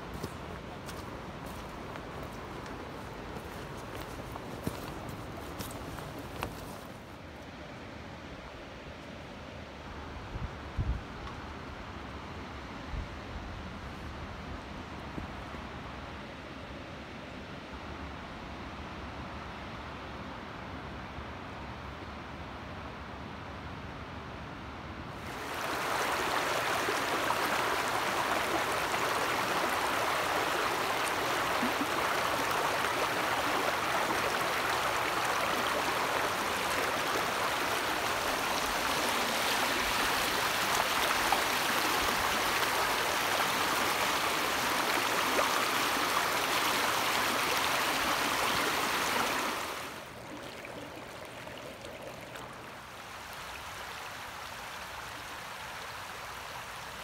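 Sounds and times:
river rapids rushing over rocks: 25.2s - 49.9s.

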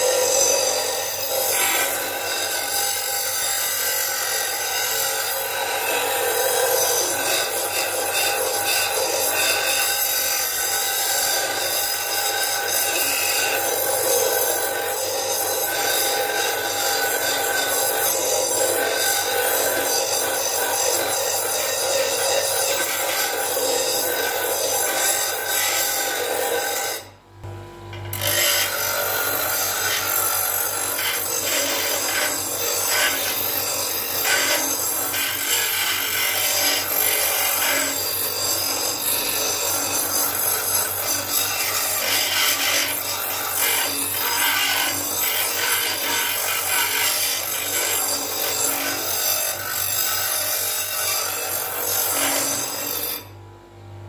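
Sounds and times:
bench grinder grinding metal: 0.0s - 53.4s
grinder motor low hum: 27.2s - 30.8s.

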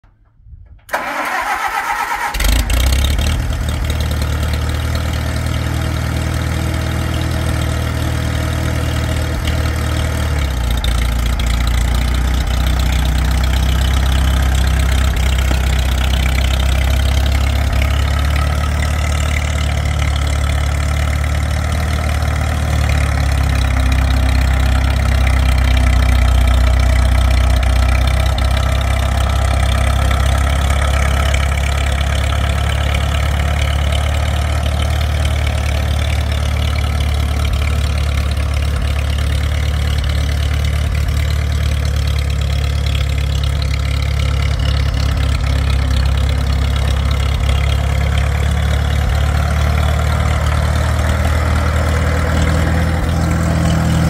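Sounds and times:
tractor engine running: 0.0s - 54.0s
starter motor cranking: 0.9s - 3.2s.

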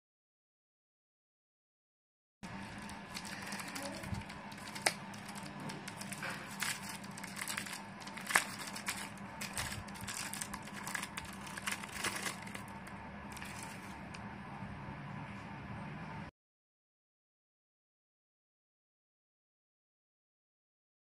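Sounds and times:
faint steady hum: 2.4s - 16.3s
plastic packet crinkling: 2.5s - 14.1s.

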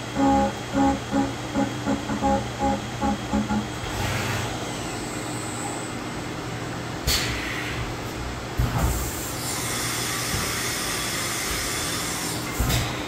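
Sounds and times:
milling machine hum: 0.0s - 4.5s.

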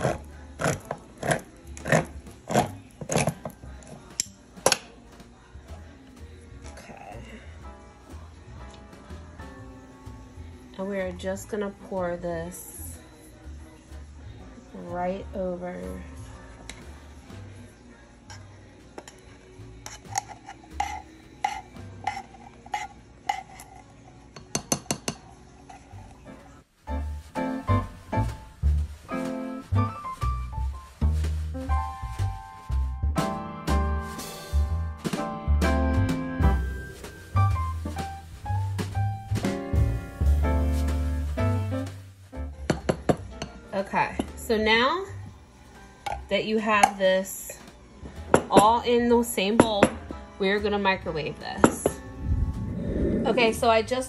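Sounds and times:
spatula scraping metal can: 19.8s - 23.9s.

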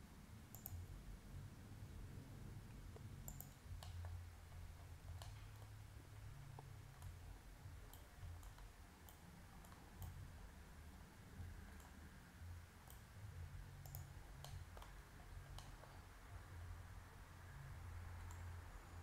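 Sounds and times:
low steady hum: 0.0s - 19.0s
computer mouse clicks: 0.5s - 0.9s, 2.9s - 5.8s, 6.5s - 7.2s, 7.9s - 10.3s, 11.6s - 12.0s, 12.8s - 13.2s, 13.8s - 16.0s, 18.2s - 19.0s.

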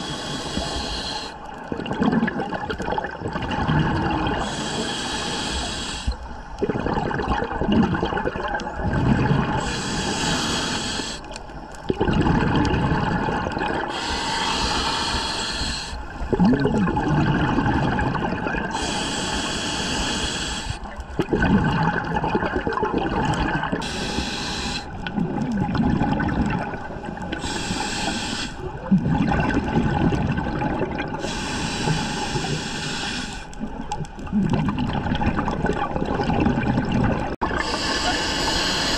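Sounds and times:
churn of water and bubbles: 1.5s - 4.6s, 6.6s - 9.8s, 11.4s - 14.0s, 16.2s - 18.8s, 20.8s - 23.9s, 24.9s - 27.6s, 28.6s - 32.5s, 33.6s - 38.2s
diver exhaling bubbles: 1.7s - 4.7s, 6.6s - 11.0s, 11.9s - 20.3s, 21.2s - 27.8s, 28.7s - 32.6s, 34.2s - 38.9s.

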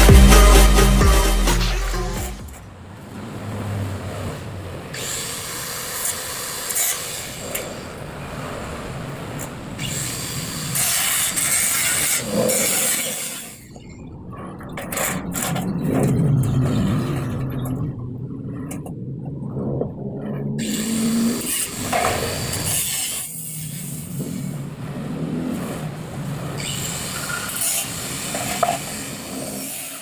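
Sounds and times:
angle grinder cutting steel: 4.9s - 7.8s, 9.8s - 13.7s, 20.6s - 24.4s, 26.6s - 30.0s.

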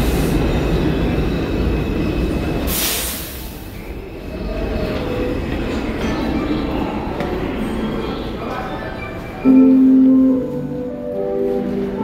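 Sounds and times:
subway train rumble: 0.0s - 12.0s.

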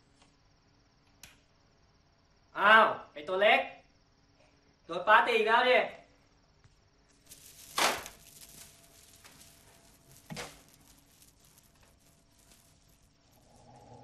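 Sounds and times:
faint steady hum: 0.0s - 14.0s
beaded curtain swishing and clattering: 7.1s - 14.0s.

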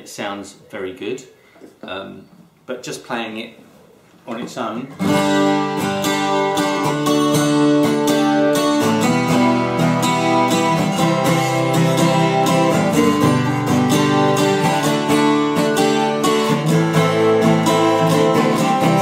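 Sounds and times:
acoustic guitar strumming: 5.0s - 19.0s.

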